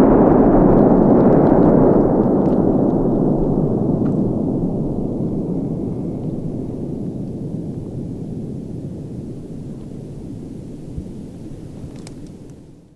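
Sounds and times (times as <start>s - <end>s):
firecracker blast echoing: 0.0s - 12.8s.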